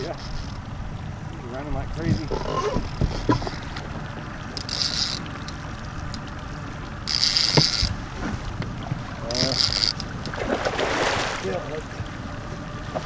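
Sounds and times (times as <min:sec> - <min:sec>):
wind: 0:00.0 - 0:13.0
fishing reel whirring: 0:02.2 - 0:08.1, 0:09.1 - 0:10.4.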